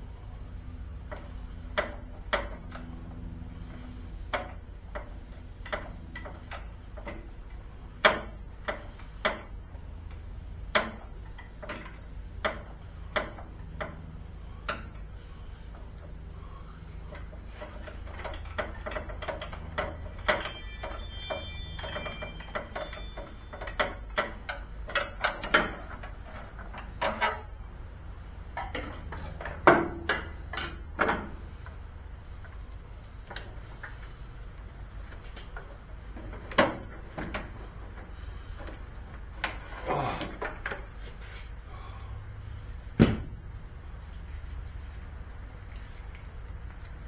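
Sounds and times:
metal tools clicking and knocking: 17.8 - 27.4.

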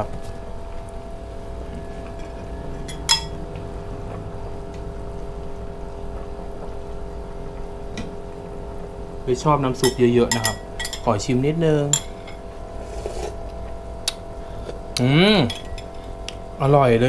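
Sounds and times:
steady low hum: 0.0 - 17.0
spoon clinking: 2.2 - 3.4, 9.8 - 11.1, 11.9 - 12.4, 15.4 - 16.0.

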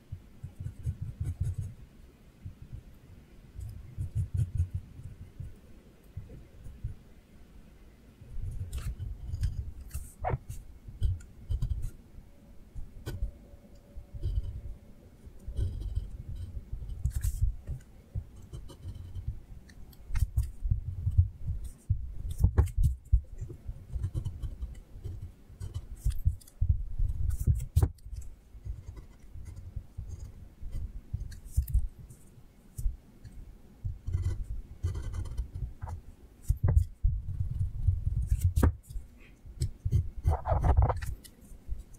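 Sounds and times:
drawing tool scratching paper: 0.4 - 1.8, 3.6 - 5.4, 8.4 - 12.0, 15.5 - 19.3, 21.5 - 31.8, 33.9 - 38.9, 39.6 - 41.2.

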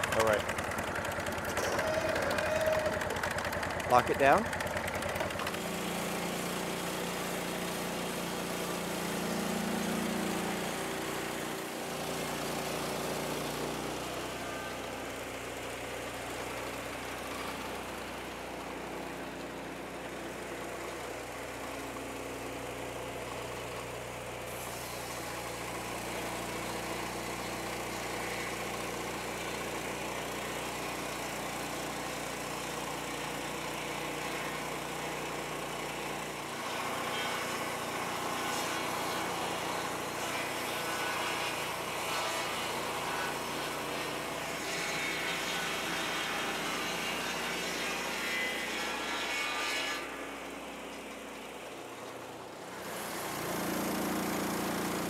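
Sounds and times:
sawmill gasoline engine running: 0.0 - 49.2, 50.1 - 55.0
circular saw cutting log: 0.0 - 55.0.

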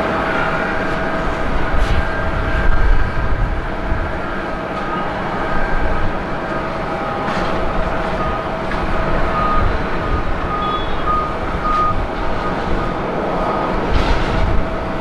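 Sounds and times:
jet engine rumble: 0.0 - 15.0
short high beeps: 10.5 - 12.0.

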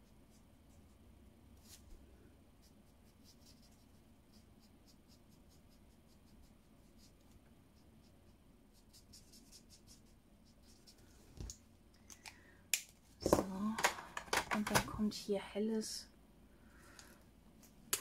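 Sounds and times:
marker scratching on cardstock: 2.6 - 11.0.

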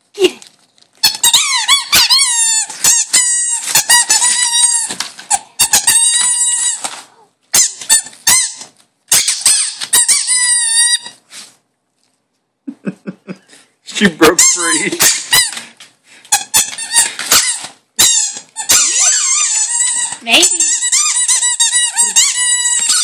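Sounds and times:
squeaky toy squeaking: 1.0 - 6.9, 7.5 - 11.2, 14.2 - 15.6, 16.3 - 23.0.

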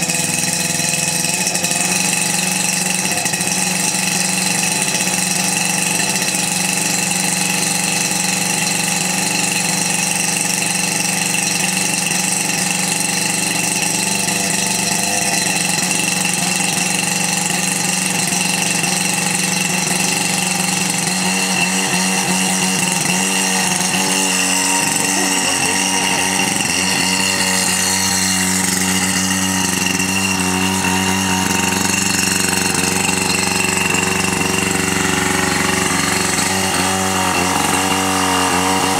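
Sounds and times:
pump engine running: 0.0 - 38.9
water jet hissing: 15.2 - 38.9.

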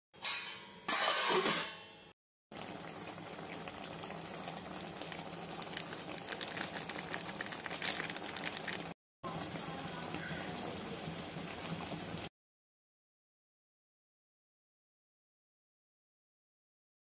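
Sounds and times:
curry bubbling in a pot: 2.5 - 12.3.

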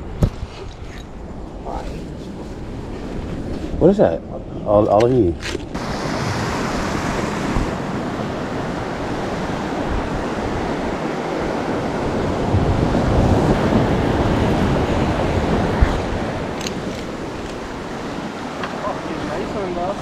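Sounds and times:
wind on microphone: 0.0 - 20.0
ocean water rushing: 5.5 - 20.0.

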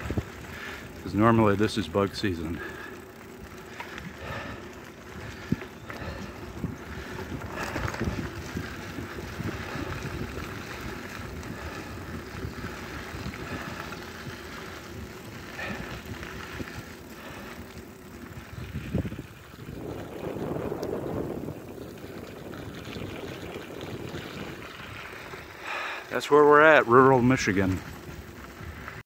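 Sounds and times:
wind buffeting microphone: 0.0 - 26.0, 26.8 - 29.0
bicycle tyres rolling on dirt: 0.0 - 29.0
bike knocks and rattles: 5.4 - 11.0.

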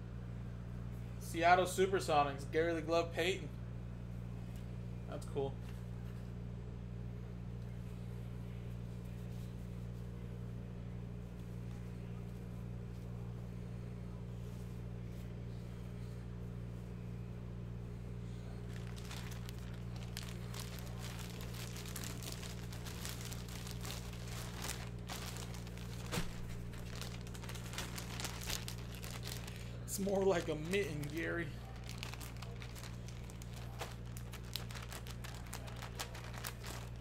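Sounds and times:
steady low hum: 0.0 - 37.0
plastic bag crinkling: 18.6 - 37.0.

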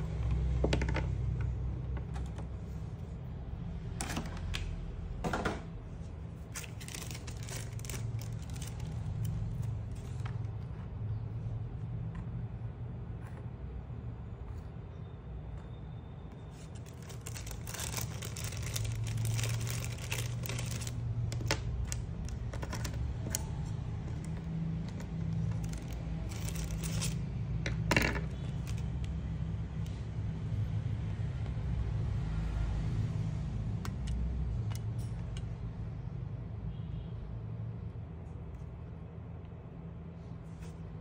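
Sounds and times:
plastic parts clicking and rattling: 6.5 - 10.5, 16.6 - 29.2.

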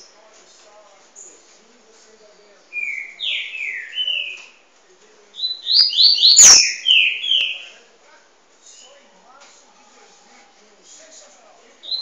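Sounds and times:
bird song whistled notes: 2.7 - 4.6, 5.4 - 7.8.

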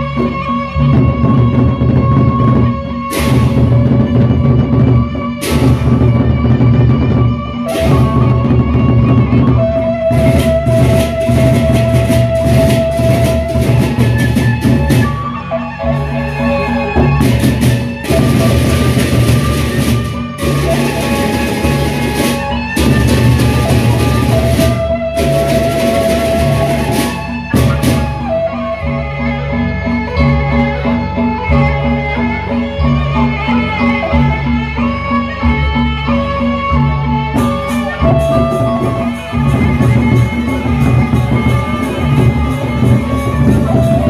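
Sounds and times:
gongs: 0.0 - 44.0
barrel drums beaten: 0.2 - 15.2, 17.0 - 28.3
clashing cymbals: 15.9 - 28.2.

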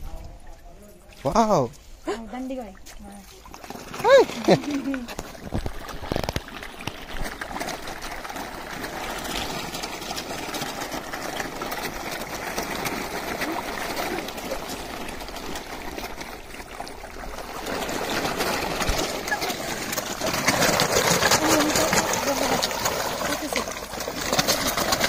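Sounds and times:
fish thrashing and splashing water: 2.7 - 25.0.

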